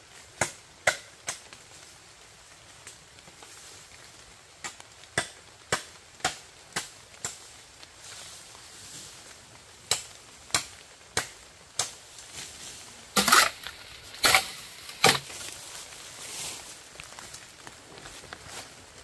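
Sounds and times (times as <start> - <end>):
blade chopping bamboo: 13.2 - 15.4.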